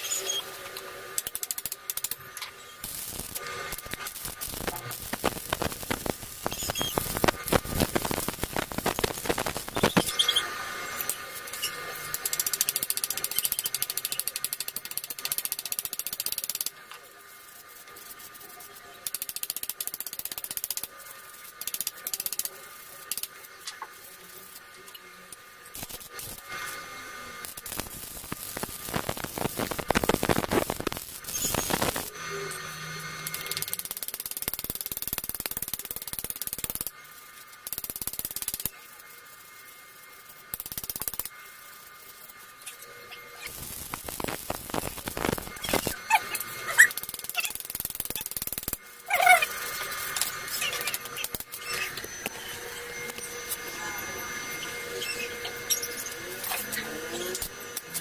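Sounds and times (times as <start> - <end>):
rapid ratcheting clicks: 0.7 - 10.2, 11.0 - 17.0, 17.9 - 23.8, 33.2 - 38.8, 40.3 - 41.4, 43.4 - 49.4.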